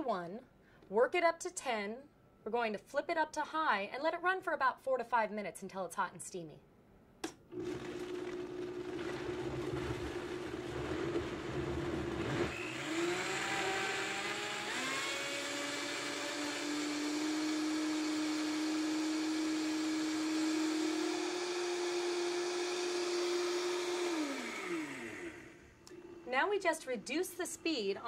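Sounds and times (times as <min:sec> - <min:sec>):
blender running: 0:07.5 - 0:27.9.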